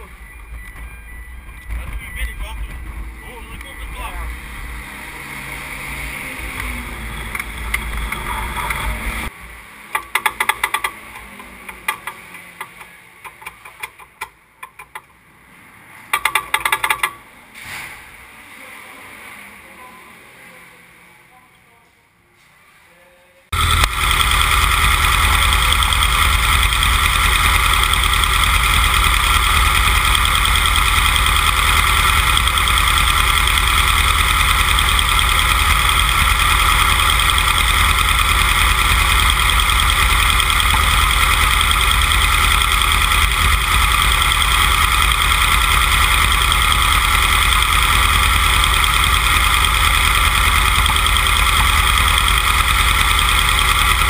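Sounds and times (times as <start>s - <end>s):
race car engine idling: 6.1s - 9.3s, 23.6s - 54.0s.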